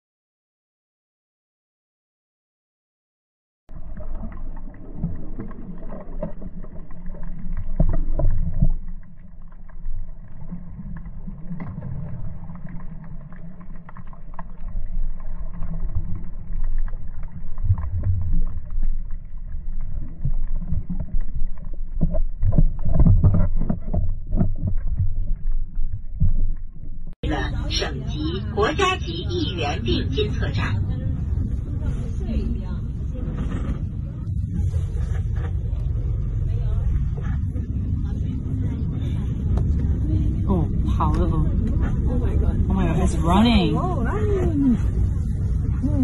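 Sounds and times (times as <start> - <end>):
muffled underwater rumble: 3.7 - 46.0.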